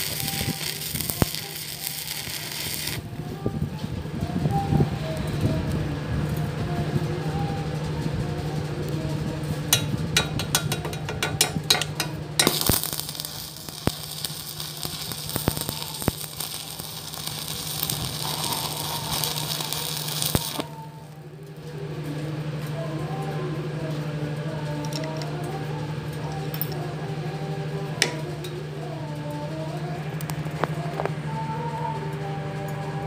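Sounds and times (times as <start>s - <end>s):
welding arc hissing: 0.0s - 3.1s, 10.5s - 20.8s
welding arc crackling: 0.0s - 3.2s, 9.7s - 21.2s
low hum: 0.0s - 33.0s.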